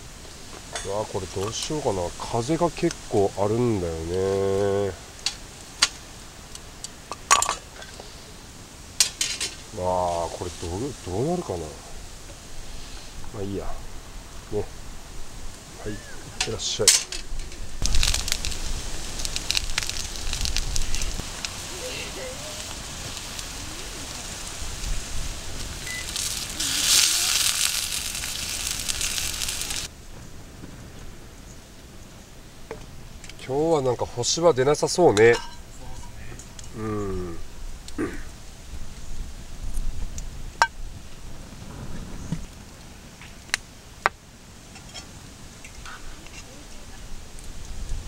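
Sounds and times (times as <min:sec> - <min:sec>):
campfire crackling: 0:00.0 - 0:48.0
food sizzling in a pan: 0:17.1 - 0:29.9.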